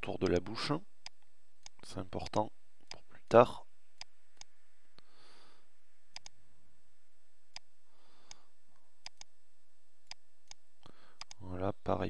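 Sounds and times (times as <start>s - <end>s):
faint hum and hiss: 0.0s - 12.0s
computer mouse clicking: 6.1s - 6.4s, 7.5s - 8.4s, 9.0s - 9.3s, 11.2s - 11.4s.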